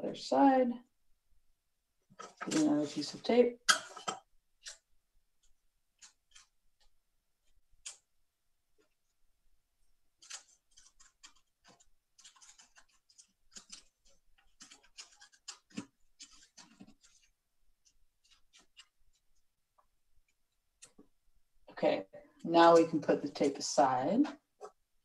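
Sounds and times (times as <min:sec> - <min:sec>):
paper and tape rustling: 0:10.2 - 0:19.4.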